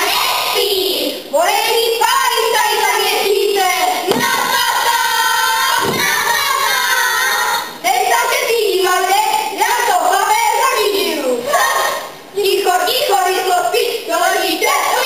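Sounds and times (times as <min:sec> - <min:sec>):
children singing a folk song: 0:00.0 - 0:09.0.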